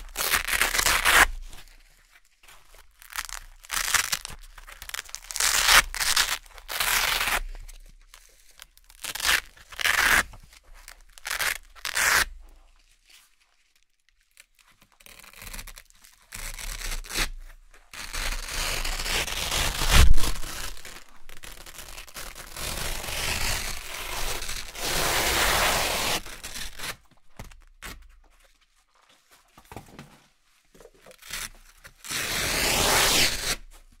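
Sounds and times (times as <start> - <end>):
velcro patches ripping apart: 0.0 - 1.9, 2.7 - 28.1, 30.8 - 33.9.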